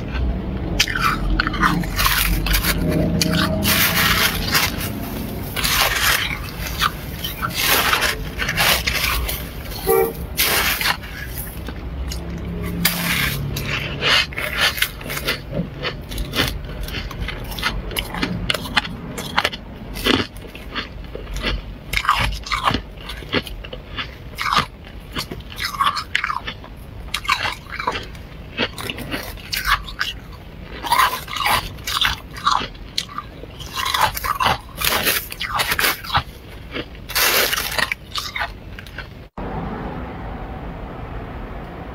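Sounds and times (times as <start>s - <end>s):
frost crunching as chewed: 0.0s - 39.4s
plastic spoon scraping frost: 0.8s - 11.8s, 12.7s - 15.5s.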